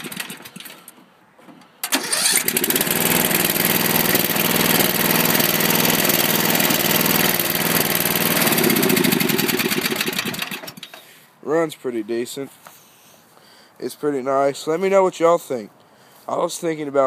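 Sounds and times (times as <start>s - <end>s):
mower engine starting and running: 0.0s - 0.9s, 1.8s - 11.1s.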